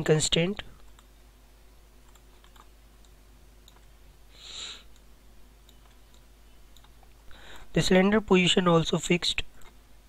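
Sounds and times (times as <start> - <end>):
computer mouse clicks: 0.8 - 1.1, 2.0 - 3.9, 4.9 - 7.1
short hiss: 4.4 - 4.9.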